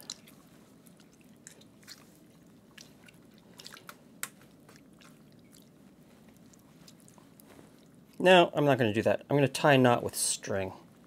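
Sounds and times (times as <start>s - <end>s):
wet casing squishing and crinkling: 0.0s - 8.3s.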